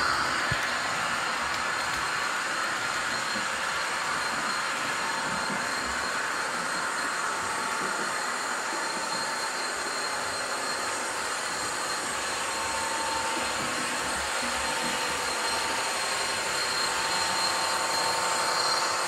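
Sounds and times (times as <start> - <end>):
model train motor whirring: 0.0 - 19.0
train wheels on rails: 0.0 - 19.0.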